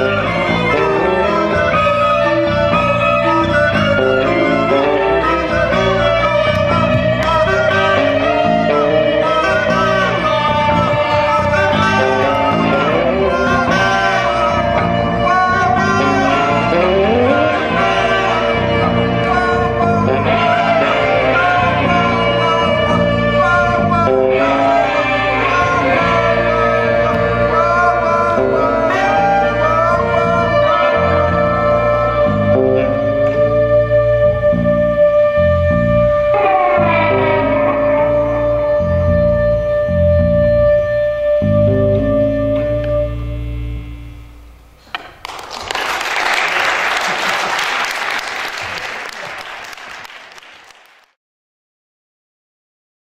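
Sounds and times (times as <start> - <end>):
live ensemble music: 0.0 - 51.0
audience applauding: 44.9 - 51.2.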